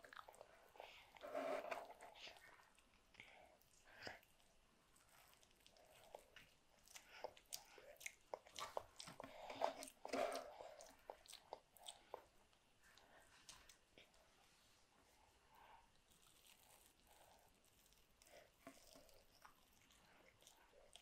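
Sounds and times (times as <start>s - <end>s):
toddler chewing: 5.0s - 12.3s.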